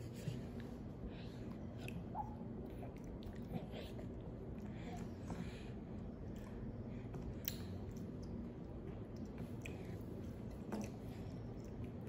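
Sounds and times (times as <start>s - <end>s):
baby chewing wet clicks: 6.2s - 12.0s.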